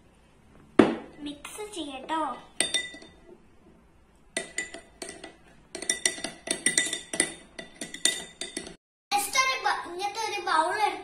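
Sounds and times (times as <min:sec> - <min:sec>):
metal spoon clinking in ceramic bowl: 0:02.6 - 0:03.2, 0:04.4 - 0:08.8.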